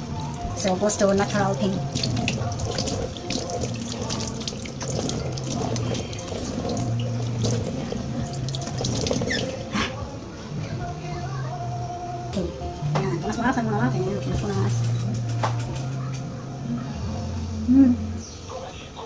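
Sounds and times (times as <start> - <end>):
tap water running into sink: 0.4 - 9.6
splashing face washing: 0.4 - 9.7.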